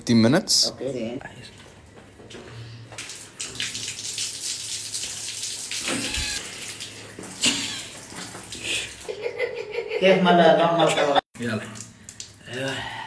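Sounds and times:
shower spraying water: 0:02.9 - 0:09.5.

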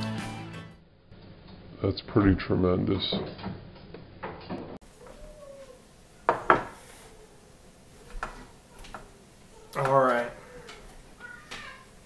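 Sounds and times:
plate knocking on wooden table: 0:06.3 - 0:06.8.

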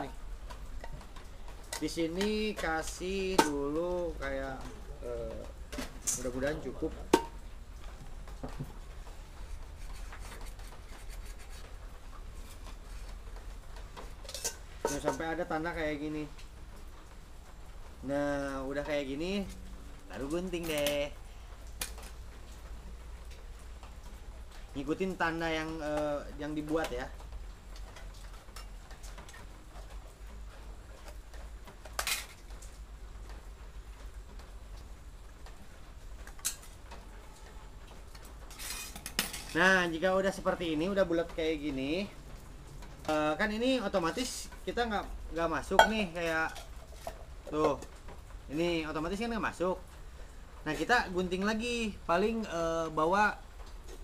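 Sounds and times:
light knocks of pot and sheet: 0:07.0 - 0:07.4
ballpoint pen scratching on metal: 0:09.8 - 0:11.7.

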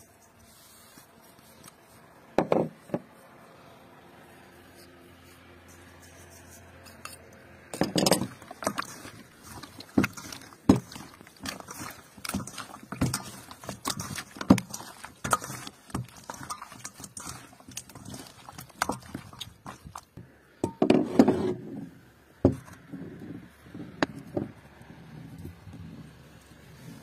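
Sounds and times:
meat squelching in metal bowl: 0:07.2 - 0:20.2.

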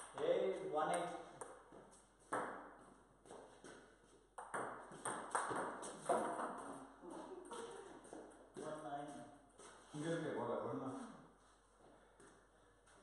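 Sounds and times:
ping-pong ball hitting paddles: 0:00.0 - 0:03.4, 0:04.4 - 0:06.9
ping-pong ball bouncing on table: 0:00.9 - 0:01.7, 0:02.3 - 0:02.8, 0:04.4 - 0:06.8.

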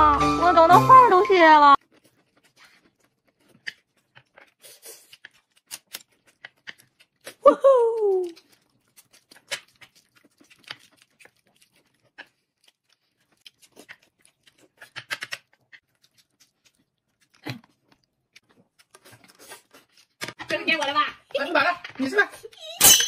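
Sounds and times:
person chewing: 0:01.8 - 0:20.4
wet mouth clicks and smacks: 0:08.2 - 0:20.2.

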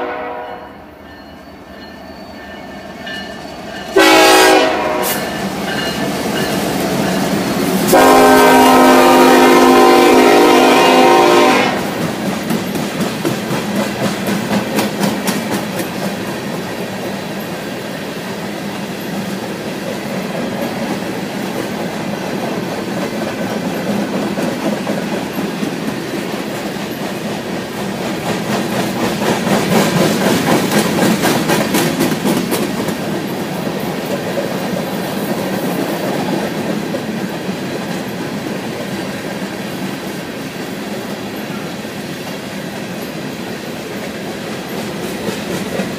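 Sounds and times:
freight train rolling past: 0:00.0 - 0:45.9
wheels clicking over rails: 0:11.9 - 0:17.9, 0:18.6 - 0:40.3.

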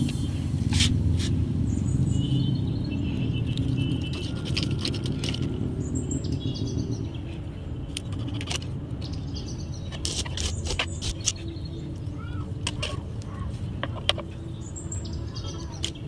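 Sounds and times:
birds chirping: 0:01.6 - 0:16.0
pruning shears snipping stems: 0:09.9 - 0:11.5.

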